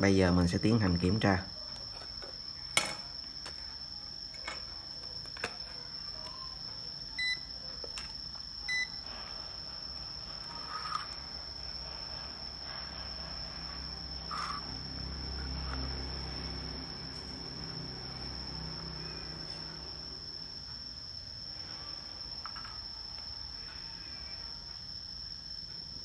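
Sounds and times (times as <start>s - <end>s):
steady high-pitched whine: 0.0s - 26.0s
multimeter beeps: 7.2s - 7.5s, 8.6s - 9.0s.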